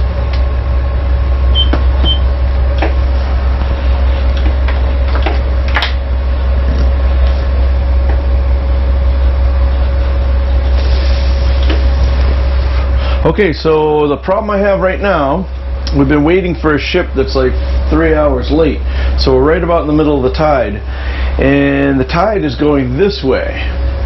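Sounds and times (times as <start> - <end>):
boat engines rumbling with whine: 0.0 - 24.0
short high beeps: 1.5 - 2.3.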